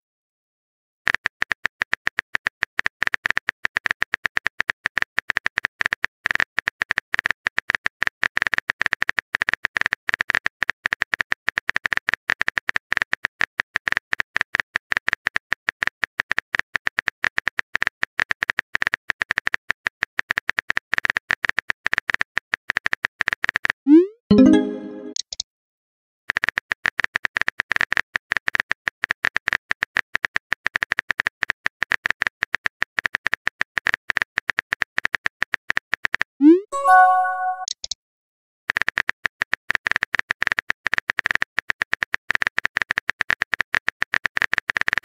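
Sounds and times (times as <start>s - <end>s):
keyboard typing clicks: 24.3s - 25.4s, 36.8s - 38.0s.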